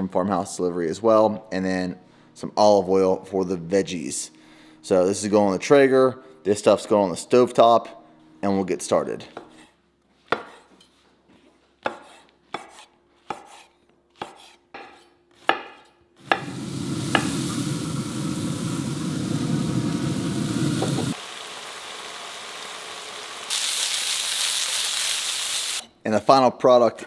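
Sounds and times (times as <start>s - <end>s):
knife chopping on wooden board: 10.3s - 10.7s, 11.8s - 17.3s
vegetables sizzling in a pan: 16.2s - 25.9s.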